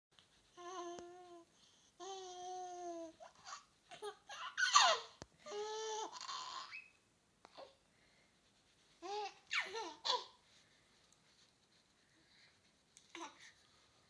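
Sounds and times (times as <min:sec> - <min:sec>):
baby laughing and squealing: 0:03.3 - 0:06.9, 0:09.0 - 0:10.4.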